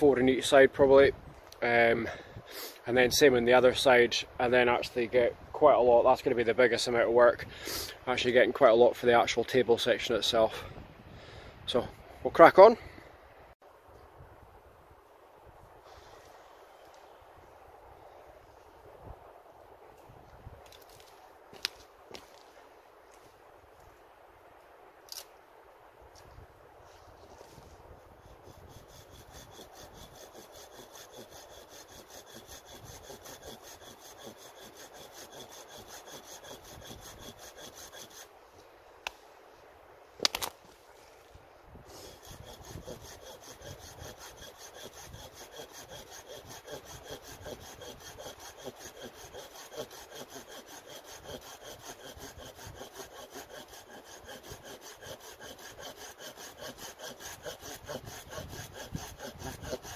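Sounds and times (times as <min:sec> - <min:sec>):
hand saw cutting wood: 0:28.2 - 0:38.3, 0:41.9 - 0:59.9.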